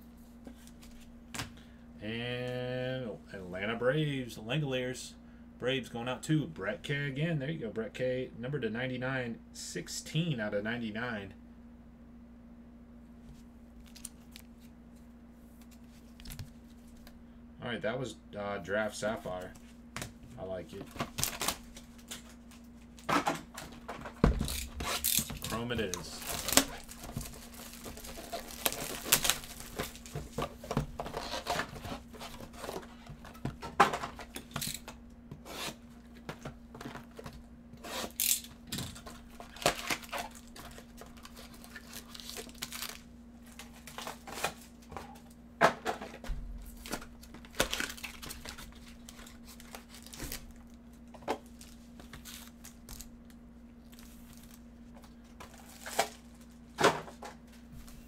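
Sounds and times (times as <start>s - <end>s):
tearing and crinkling of wrapping: 21.1s - 23.0s, 24.5s - 30.4s, 39.0s - 44.6s, 46.7s - 50.6s.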